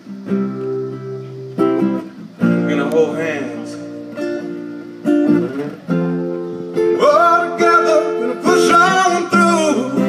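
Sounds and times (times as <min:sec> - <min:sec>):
acoustic guitar strummed: 0:00.0 - 0:10.0
man singing: 0:06.9 - 0:10.0.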